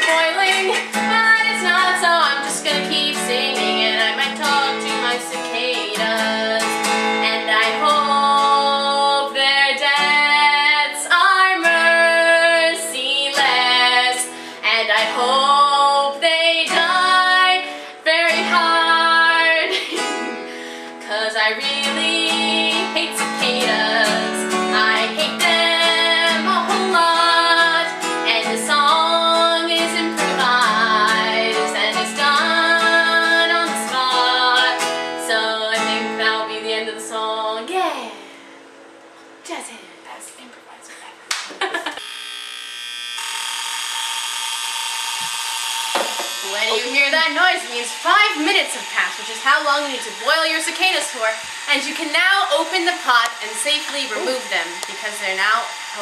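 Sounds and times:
women singing: 0.0s - 38.2s, 46.6s - 55.6s
strummed acoustic guitar: 0.0s - 38.6s, 46.0s - 50.5s.

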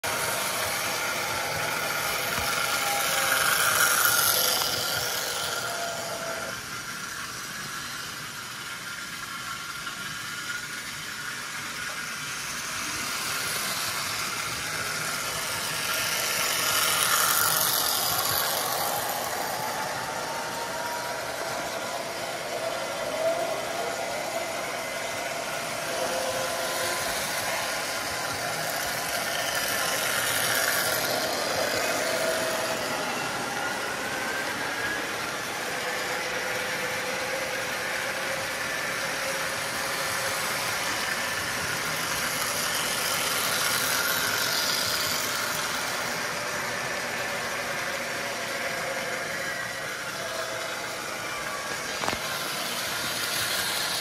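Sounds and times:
toy train motor whir: 0.0s - 54.0s
wheels rattling on rails: 0.0s - 54.0s.

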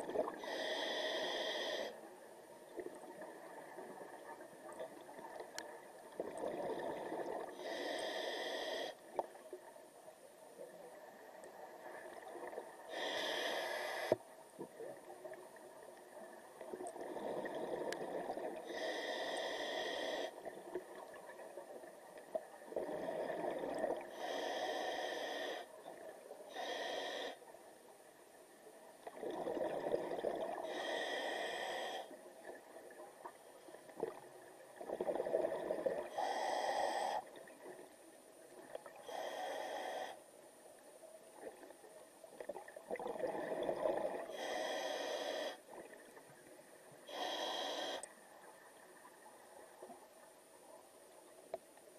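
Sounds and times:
regulator hissing inhalation: 0.4s - 2.0s, 12.9s - 14.2s, 18.7s - 20.4s, 44.3s - 45.6s, 47.1s - 48.1s
exhaled bubbles rumbling: 42.5s - 44.3s.

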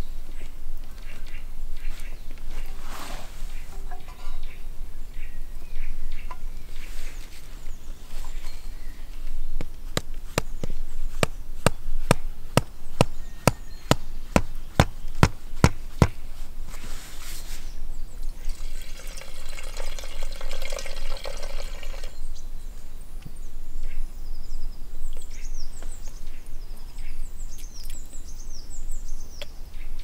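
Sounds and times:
wine pouring into metal pot: 18.4s - 22.2s.

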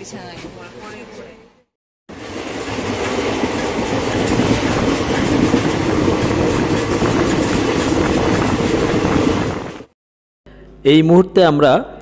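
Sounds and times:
train wheels on track: 2.1s - 10.0s.

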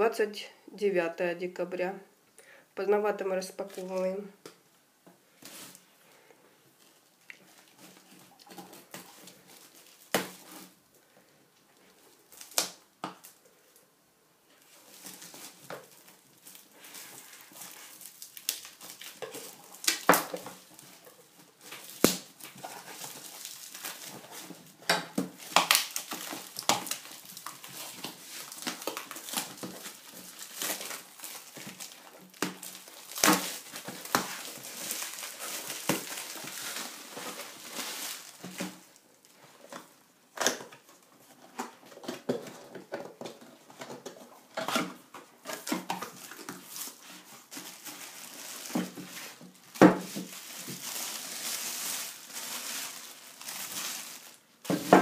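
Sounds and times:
packaging crinkling and rustling: 5.4s - 5.9s, 6.8s - 10.8s, 11.6s - 13.4s, 14.6s - 55.0s
plastic wrap being cut and torn: 12.3s - 13.3s, 14.9s - 39.0s, 44.0s - 55.0s.

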